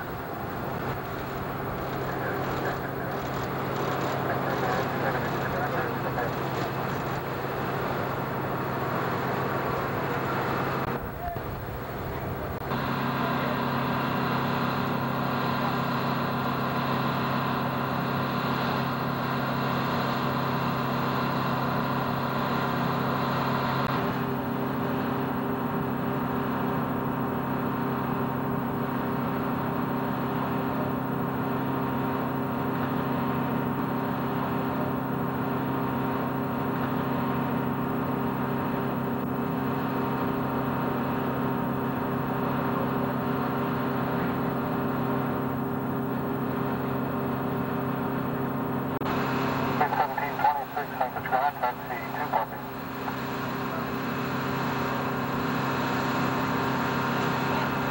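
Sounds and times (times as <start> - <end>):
machinery drone: 0.0 - 57.9
higher whine and hiss: 48.8 - 57.9.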